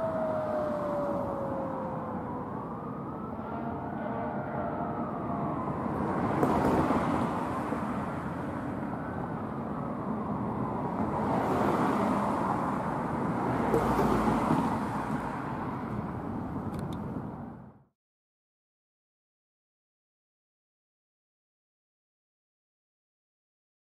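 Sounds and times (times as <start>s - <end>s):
fire engine siren wailing: 0.0s - 15.9s
street traffic noise: 0.0s - 17.9s.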